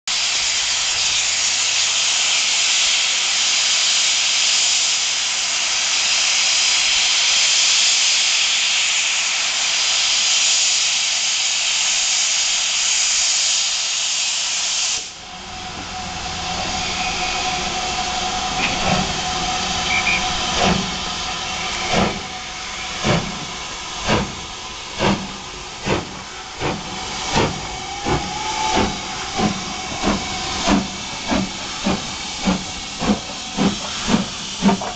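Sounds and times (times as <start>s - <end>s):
steam hissing from safety valves: 0.1s - 34.9s
steam hissing from drain cocks: 0.2s - 34.9s
steam locomotive exhaust chuffs: 0.2s - 34.9s.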